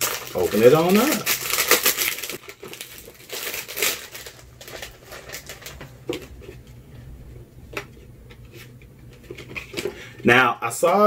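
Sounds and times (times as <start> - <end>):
packaging rustling and clicking: 0.0 - 6.7.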